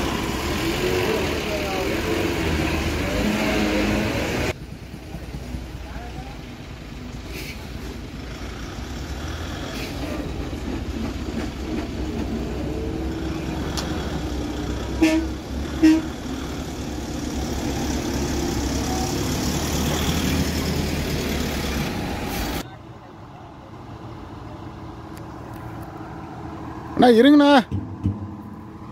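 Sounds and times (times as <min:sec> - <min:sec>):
heavy truck engine running: 0:00.0 - 0:22.7
truck horn toots: 0:15.0 - 0:16.2.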